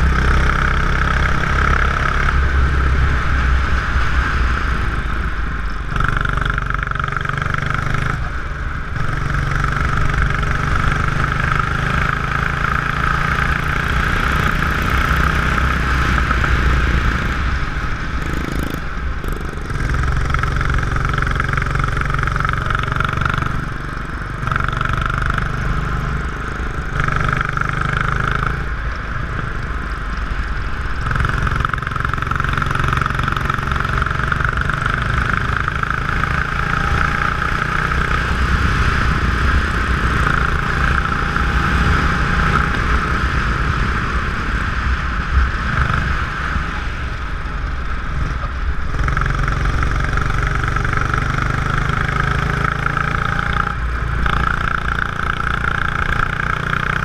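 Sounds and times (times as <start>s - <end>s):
go-kart engine running hard: 0.0s - 57.0s.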